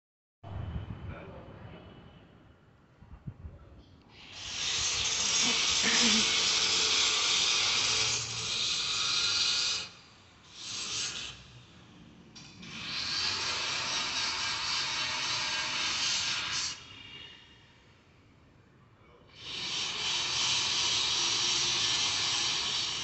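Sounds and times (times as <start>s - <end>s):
loud steady hiss: 4.1s - 11.6s, 19.3s - 23.0s.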